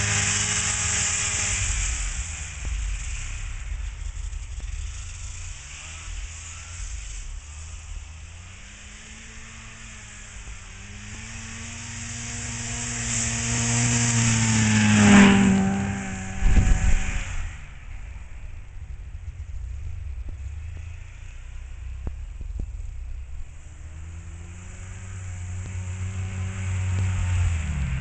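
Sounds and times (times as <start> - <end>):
snowmobile engine passing: 0.0 - 28.0
wind buffeting microphone: 14.4 - 20.6.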